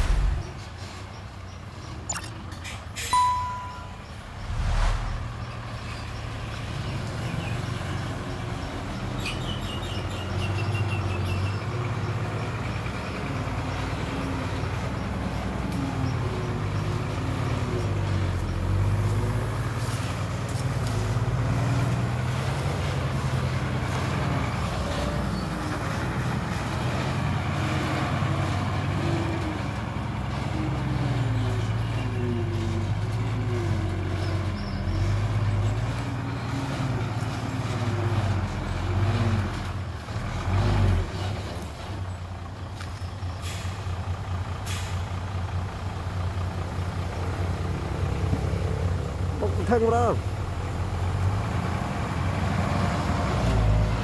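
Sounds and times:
heavy diesel machinery engines: 0.0 - 54.0
short sharp sounds: 3.2 - 5.7.

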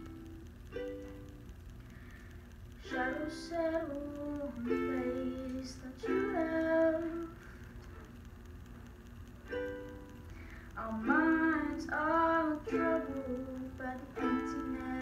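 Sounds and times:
ukulele strummed chords: 0.0 - 2.1, 2.8 - 8.2, 9.3 - 15.0
woman singing: 2.8 - 7.4, 10.8 - 15.0.

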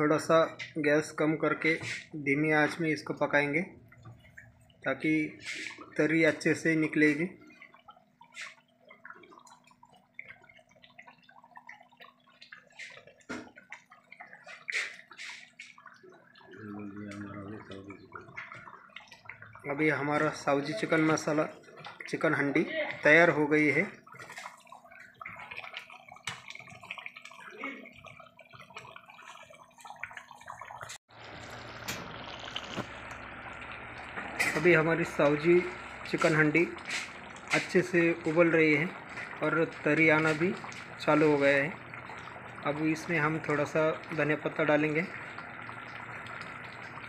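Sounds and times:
thick gravy bubbling and popping: 0.0 - 47.0.

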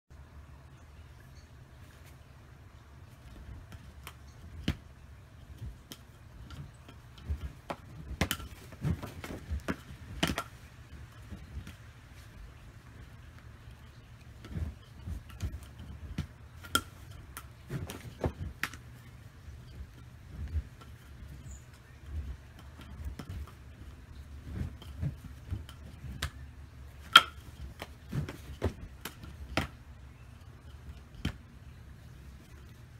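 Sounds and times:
wooden nunchaku clacking: 5.4 - 11.9, 12.9 - 31.4.

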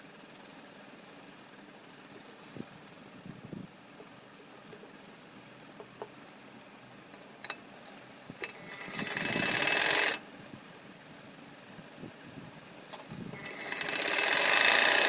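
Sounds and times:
sewing machine stitching: 8.7 - 10.2, 13.4 - 15.0.

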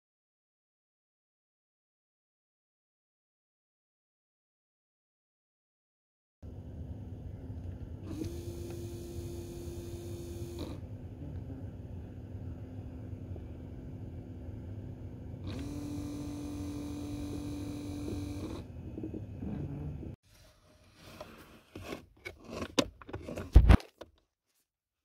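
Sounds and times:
servo motor whining: 7.6 - 20.2.

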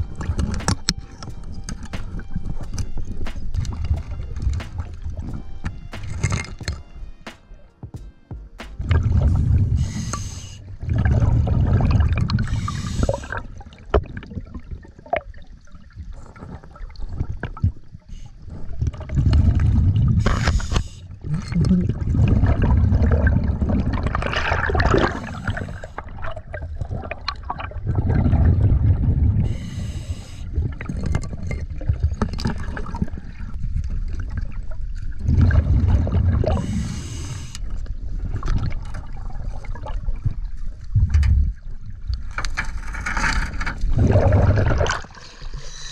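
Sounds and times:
bubbling exhaled air: 8.8 - 15.3, 18.7 - 33.5, 35.2 - 40.0, 43.8 - 45.9
regulator hiss on inhale: 9.7 - 10.7, 12.4 - 13.4, 20.2 - 21.2, 25.1 - 26.1, 29.4 - 30.6, 36.5 - 37.9, 45.5 - 45.9.

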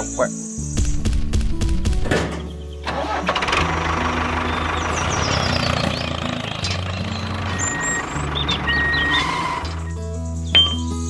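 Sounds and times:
engine starting and idling: 2.1 - 10.0.

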